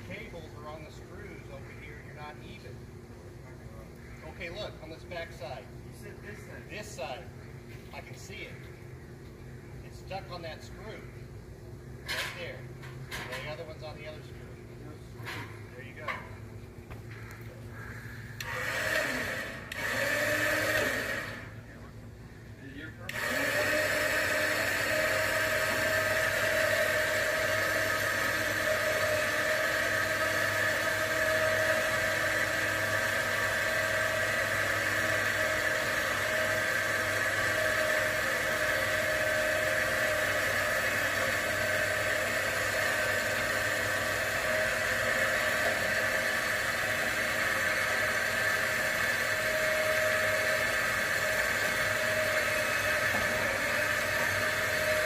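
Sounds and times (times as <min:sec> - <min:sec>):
hoist motor whirring: 0:15.2 - 0:22.0, 0:22.8 - 0:55.0.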